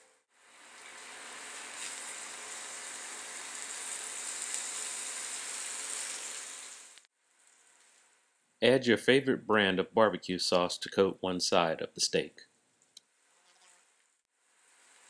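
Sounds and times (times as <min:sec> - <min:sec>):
steaks sizzling on grill pan: 0:00.7 - 0:07.0.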